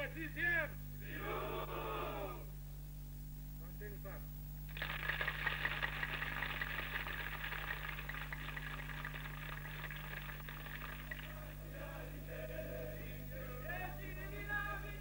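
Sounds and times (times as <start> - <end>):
low electrical hum: 0.0 - 15.0
crowd applauding: 4.7 - 11.7.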